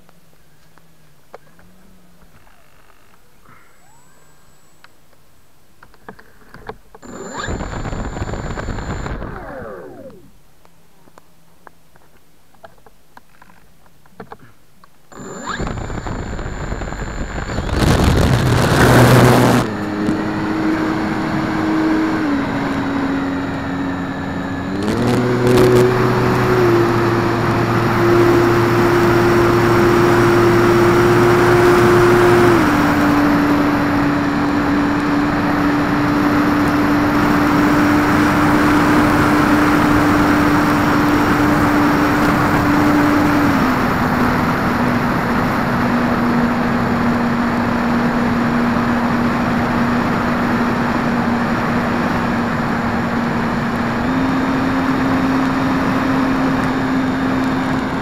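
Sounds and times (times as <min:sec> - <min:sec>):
electric motor and propeller hum: 0:06.5 - 0:10.4, 0:15.1 - 0:58.0
wind noise: 0:15.2 - 0:54.2.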